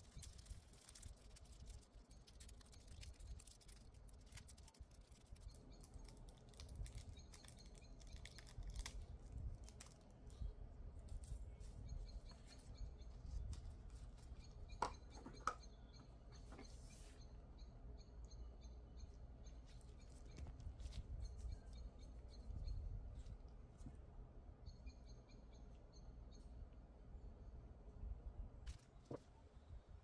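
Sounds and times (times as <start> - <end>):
foil crinkling and scratching: 0.0 - 9.0.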